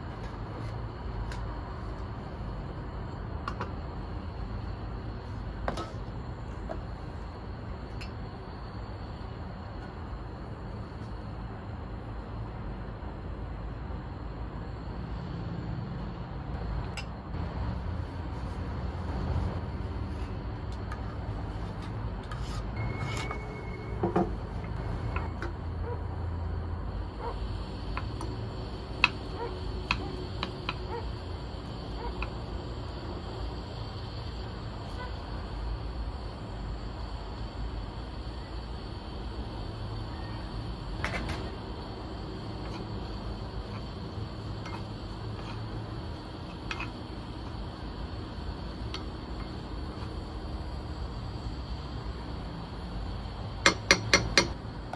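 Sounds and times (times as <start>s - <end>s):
steady low rumble: 0.0s - 53.7s
wooden spoon scraping a pan: 21.0s - 24.0s, 44.6s - 45.8s
spoon knocking against pan: 53.6s - 54.6s.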